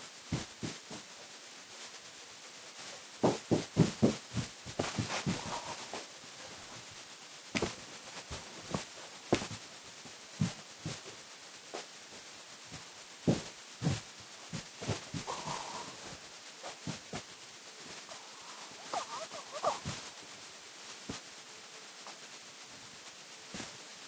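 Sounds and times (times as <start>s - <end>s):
thumps and knocks: 3.2s - 5.8s, 7.6s - 7.8s.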